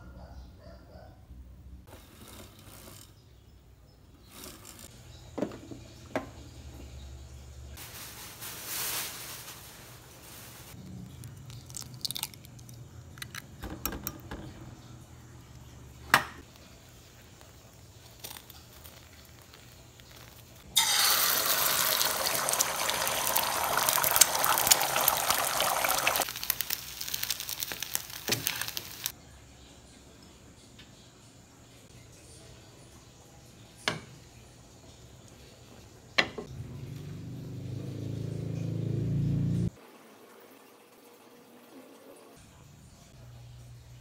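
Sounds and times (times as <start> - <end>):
eggs sizzling in hot pan: 18.7 - 29.2.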